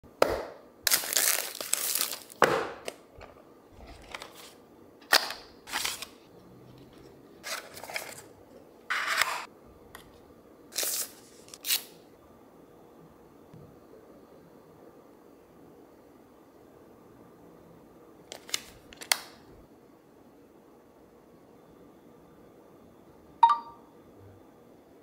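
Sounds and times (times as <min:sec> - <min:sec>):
packaging rustling and crinkling: 0:00.9 - 0:02.4, 0:03.8 - 0:06.3, 0:06.9 - 0:08.3, 0:10.8 - 0:11.8.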